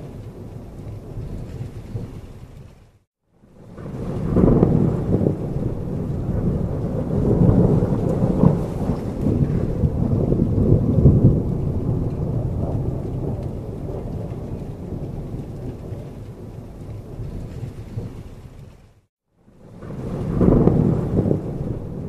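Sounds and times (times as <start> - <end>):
heavy rain falling: 0.0 - 22.0
low thunder rumble: 0.0 - 22.0.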